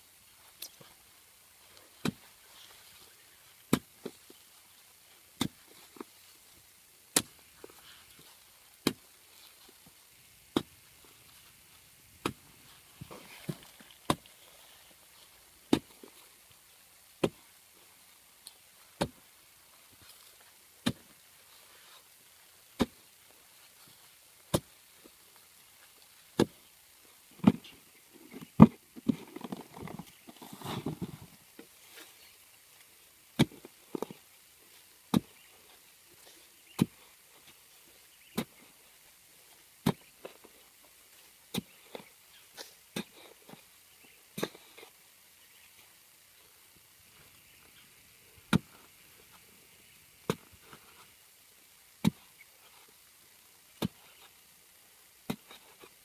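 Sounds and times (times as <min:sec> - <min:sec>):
hoe chopping into dry soil: 0:02.0 - 0:02.3, 0:03.7 - 0:04.1, 0:05.4 - 0:05.6, 0:08.8 - 0:09.0, 0:10.5 - 0:10.8, 0:12.2 - 0:12.4, 0:13.0 - 0:14.3, 0:15.7 - 0:16.1, 0:17.2 - 0:17.5, 0:19.0 - 0:19.2, 0:20.8 - 0:21.1, 0:22.8 - 0:23.0, 0:24.5 - 0:24.8, 0:26.4 - 0:26.6, 0:28.4 - 0:31.3, 0:33.4 - 0:34.2, 0:35.1 - 0:35.4, 0:36.7 - 0:37.0, 0:39.8 - 0:40.5, 0:41.5 - 0:43.6, 0:44.4 - 0:44.9, 0:48.5 - 0:48.8, 0:50.2 - 0:50.8, 0:52.0 - 0:52.4, 0:53.8 - 0:54.3, 0:55.3 - 0:55.9
loose earth scraping: 0:07.1 - 0:16.6, 0:17.2 - 0:43.7, 0:55.2 - 0:56.0.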